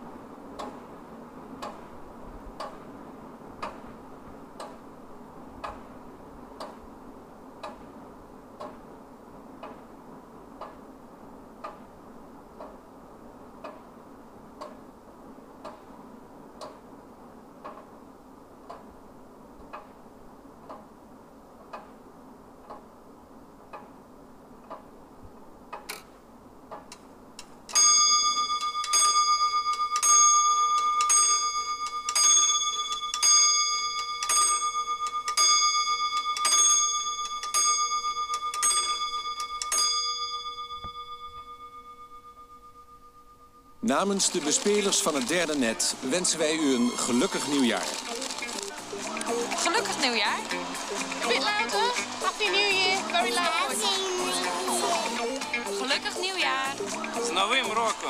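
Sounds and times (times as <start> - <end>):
wall clock ticking: 0.3 - 23.0, 23.6 - 26.0, 26.6 - 41.2, 43.8 - 47.9, 48.7 - 58.0
clock bell striking: 27.8 - 44.4.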